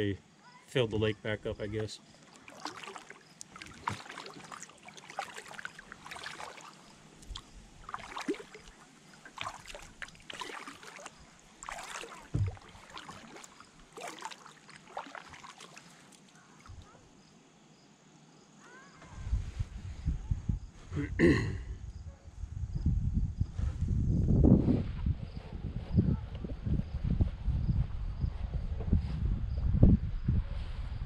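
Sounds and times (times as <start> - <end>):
paddle splashing in water: 2.1 - 17.0.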